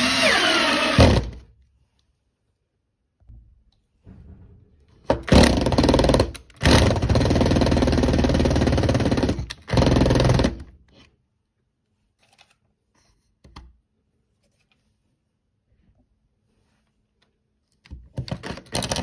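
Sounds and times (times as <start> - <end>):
cordless drill motor running: 0.0 - 1.3.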